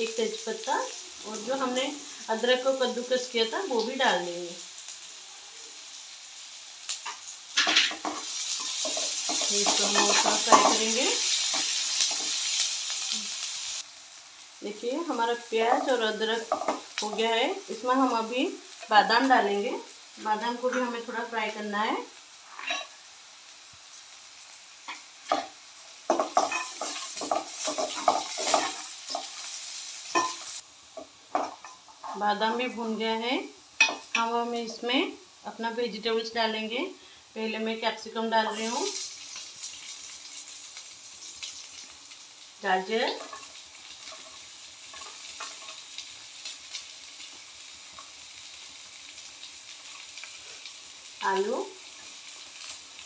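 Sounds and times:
food sizzling in oil: 0.0 - 53.0.

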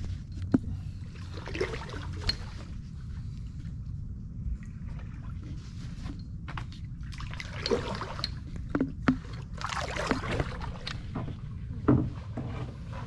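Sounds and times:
steady low rumble: 0.0 - 13.0
paddle splashing in water: 7.1 - 11.3.

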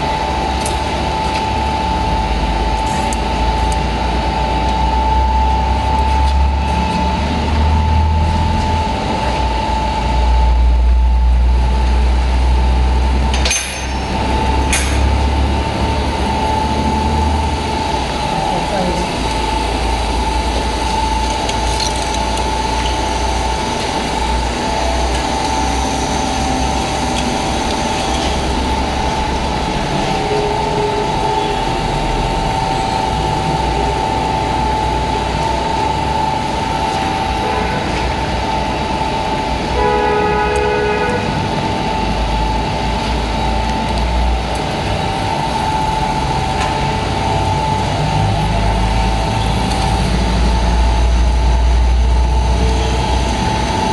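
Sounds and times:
machinery humming with whine: 0.0 - 53.9.

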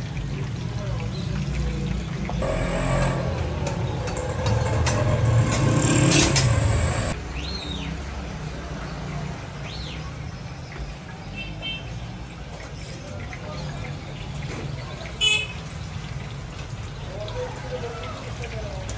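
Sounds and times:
low rumble: 2.4 - 7.2.

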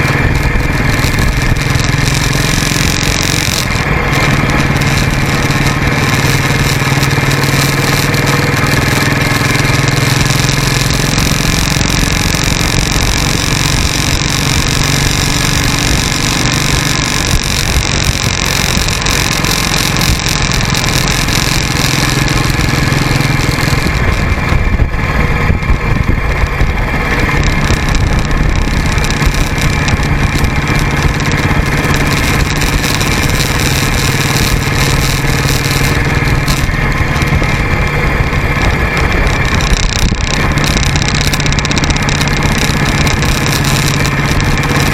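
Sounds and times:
motorcycle engine running: 0.0 - 44.9
road noise: 0.0 - 44.9
wind rush over microphone: 0.0 - 44.9.

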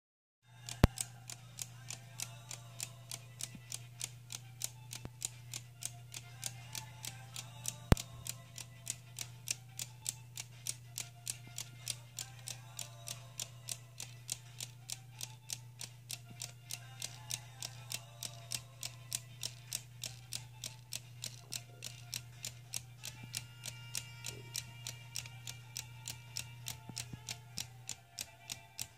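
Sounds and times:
clock ticking: 0.6 - 28.9.

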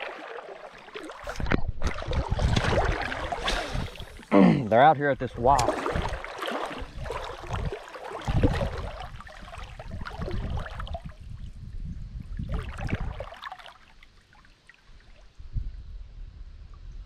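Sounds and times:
water lapping against boat hull: 0.0 - 15.3.

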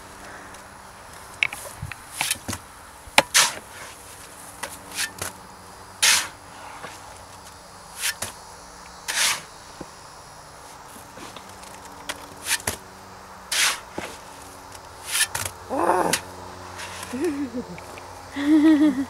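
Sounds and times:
shovel scraping wet concrete: 3.2 - 4.0, 4.9 - 5.3, 6.0 - 7.0, 8.0 - 8.3, 9.1 - 9.5, 12.4 - 12.8, 13.5 - 14.4, 15.0 - 15.5, 16.1 - 17.2.

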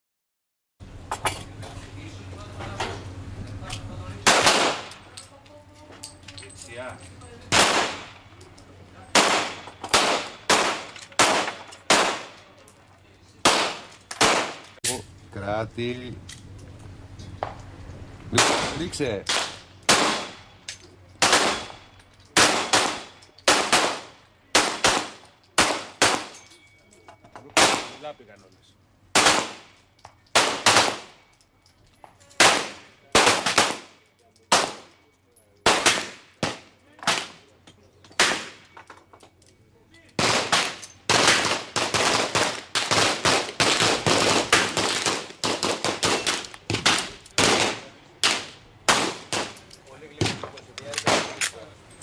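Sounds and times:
handgun shots: 13.4 - 14.7.

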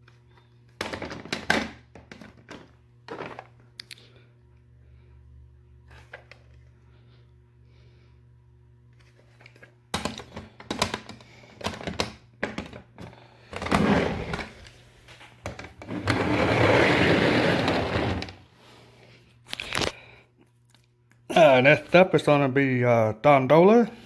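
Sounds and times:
plastic cases rustling and scraping: 0.8 - 3.6, 9.0 - 18.5
plastic cases clicking and knocking: 9.9 - 13.8.

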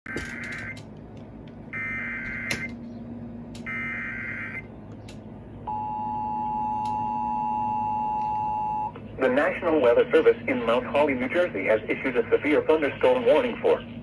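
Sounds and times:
two-tone attention signal: 5.7 - 8.9.

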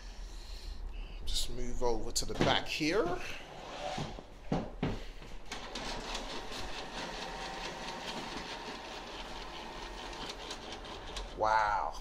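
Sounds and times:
printer clattering: 5.5 - 11.4.

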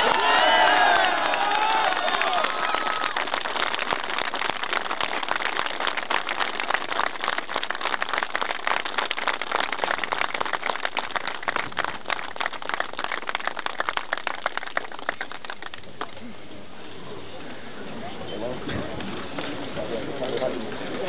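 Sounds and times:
crowd applauding: 0.0 - 16.2.

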